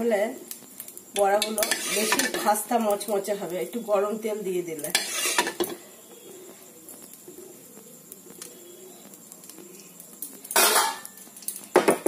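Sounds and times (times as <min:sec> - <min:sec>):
faint bird cooing: 0:05.5 - 0:11.2.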